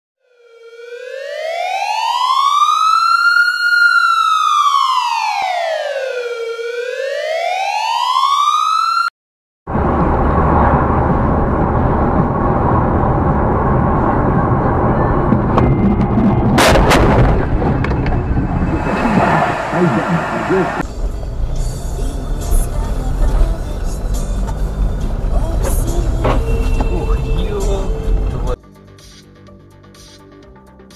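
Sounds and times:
siren wailing: 0.2 - 9.1, 13.2 - 28.6
road and engine noise: 9.7 - 28.6
sharp bangs: 15.3 - 19.9.

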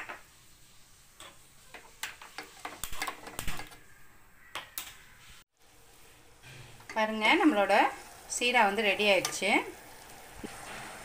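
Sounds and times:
faint hiss: 0.0 - 2.5.

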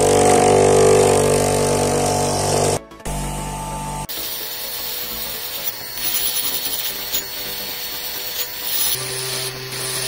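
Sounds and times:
rotary tool grinding steel: 4.1 - 10.0.

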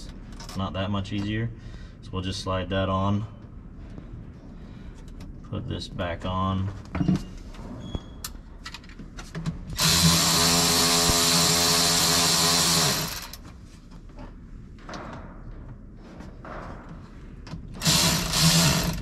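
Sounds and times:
cordless electric ratchet running: 9.8 - 13.4, 17.8 - 19.0.

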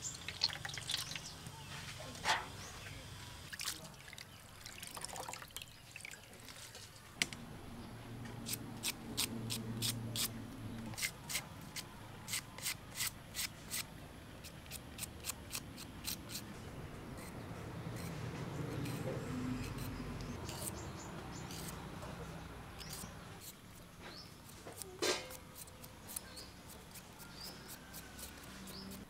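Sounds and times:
knife slicing onion: 10.9 - 16.4, 22.8 - 29.0.

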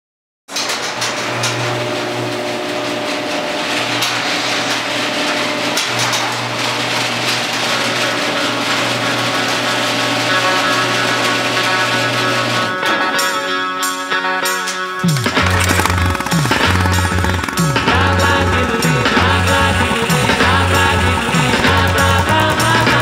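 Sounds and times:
garage door rattling and rumbling: 0.5 - 12.8, 15.1 - 23.0
garage door opener humming: 0.5 - 13.4, 14.9 - 23.0.

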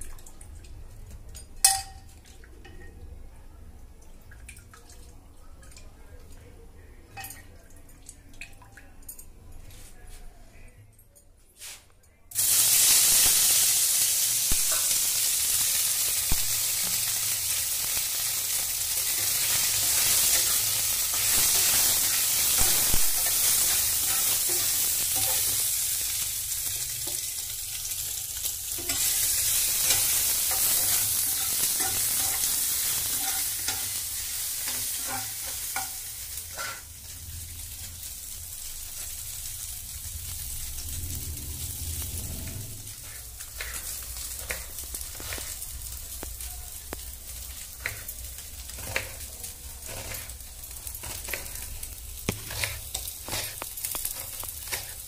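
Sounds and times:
food hissing and bubbling in water: 12.4 - 55.0
metal spatula clinking and scraping: 19.0 - 25.7, 28.7 - 36.9, 47.8 - 55.0.

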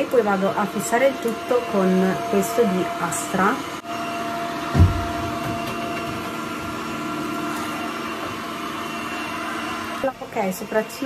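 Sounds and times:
robot vacuum whirring: 0.1 - 11.0
whining tones: 0.9 - 11.0
low thud: 4.7 - 5.4.

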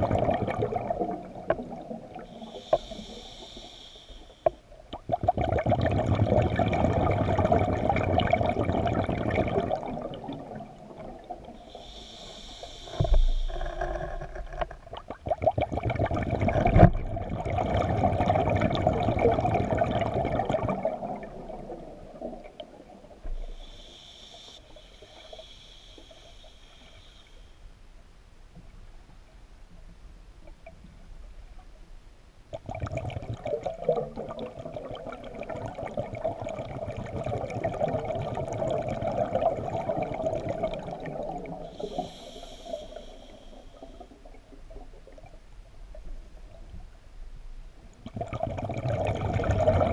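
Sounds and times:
underwater bubbling exhales: 0.0 - 27.2, 32.5 - 46.8, 48.0 - 49.9
regulator hissing inhale: 2.2 - 4.6, 11.6 - 14.5, 23.2 - 27.8, 41.6 - 44.2.

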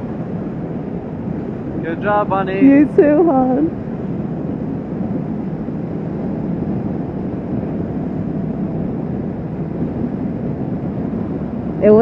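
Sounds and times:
motorcycle road noise: 0.0 - 12.0
wind rush: 0.0 - 12.0.

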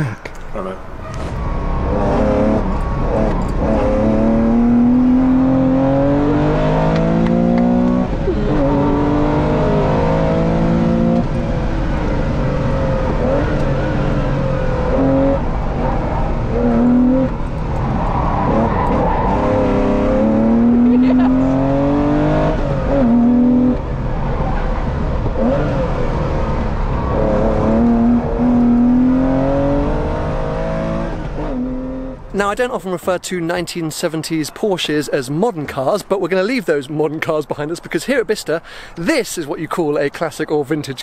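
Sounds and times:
car engine accelerating through gears: 1.0 - 32.3.

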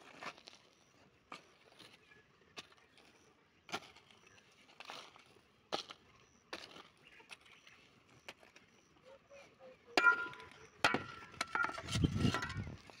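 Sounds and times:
shovel scraping dry soil: 0.0 - 7.5, 10.0 - 13.0
shovel clanking: 10.0 - 12.8.

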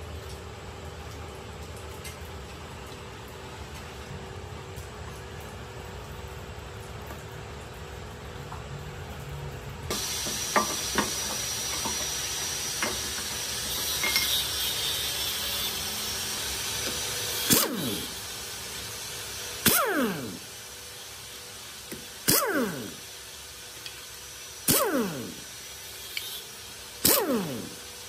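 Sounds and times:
power impact wrench bursts: 9.9 - 23.4, 24.5 - 28.0
steady hiss: 9.9 - 28.0
metal gears clinking: 13.7 - 14.7.

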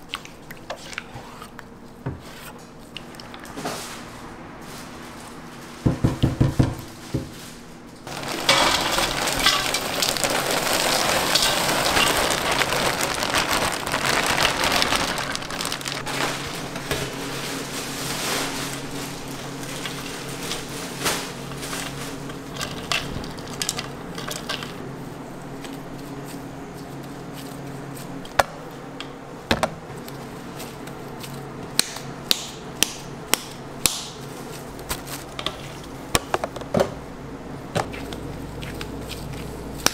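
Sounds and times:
low hum: 2.9 - 6.0.

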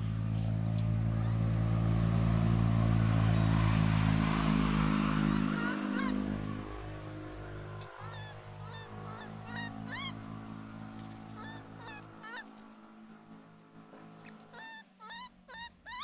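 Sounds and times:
low steady hum: 0.0 - 15.9
baby monkey high-pitched calls: 4.8 - 12.6, 14.2 - 16.0.

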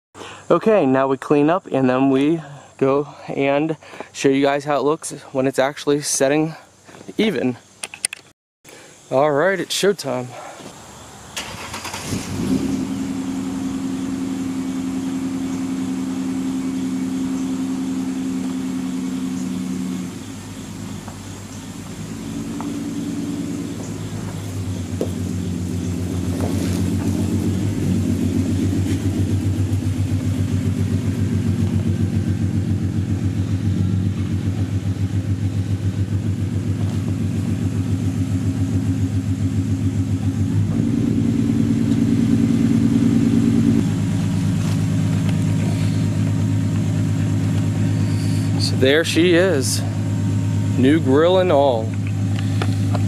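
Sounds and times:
car exhaust rumble: 11.0 - 53.0.

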